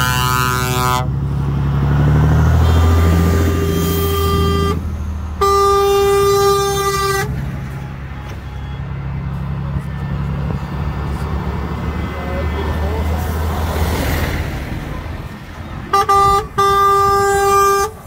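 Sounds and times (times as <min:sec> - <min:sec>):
truck horn blasts: 0:00.0 - 0:01.2, 0:02.5 - 0:08.9, 0:15.8 - 0:18.0
trucks passing with diesel engines: 0:00.0 - 0:18.0.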